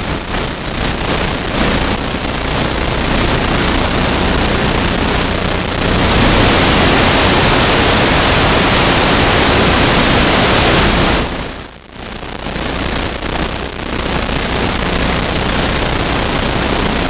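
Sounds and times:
loud rushing hiss: 0:00.0 - 0:11.7.

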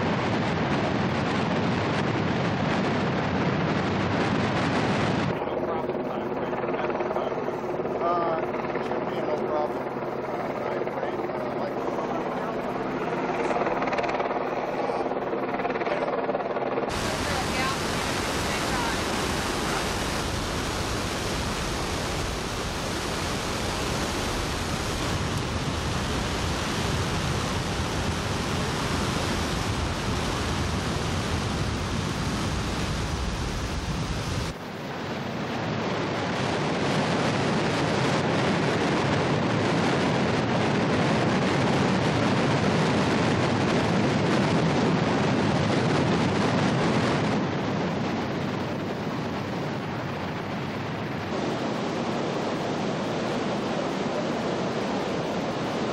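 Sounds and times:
deep rumble: 0:16.9 - 0:34.6
water rushing through spillway: 0:16.9 - 0:34.6.

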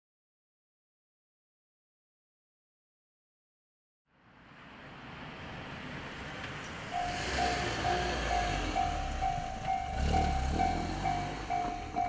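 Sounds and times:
car driving past: 0:04.2 - 0:12.0
level crossing warning bell: 0:06.9 - 0:12.0.

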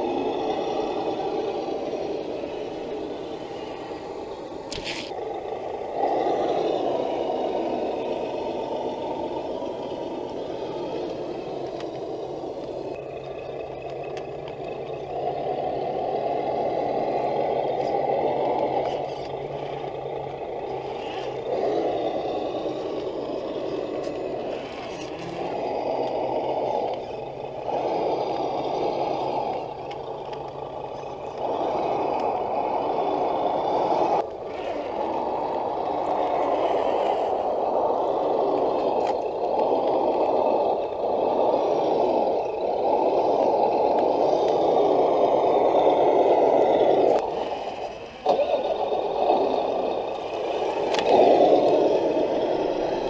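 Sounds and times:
steady low hum: 0:00.0 - 0:53.0
toy truck electric motors whirring: 0:00.0 - 0:53.0.

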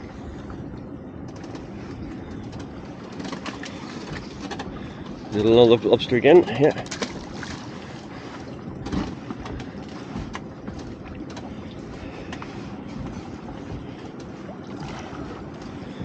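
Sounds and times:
water lapping against boat hull: 0:00.0 - 0:16.0
wind on microphone: 0:08.5 - 0:16.0.

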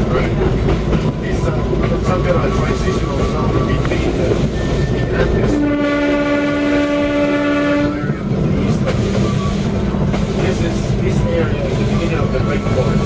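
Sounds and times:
train running on rails: 0:00.0 - 0:13.0
train horn blast: 0:05.4 - 0:08.2.

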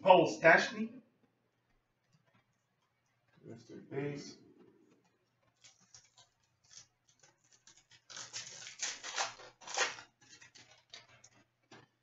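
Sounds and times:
wrapper tearing and crinkling: 0:05.6 - 0:11.4.

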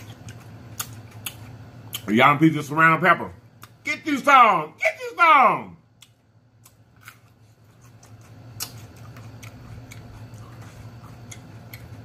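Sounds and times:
low steady hum: 0:00.0 - 0:12.0
wet mouth chewing clicks: 0:00.2 - 0:02.1, 0:07.8 - 0:12.0.

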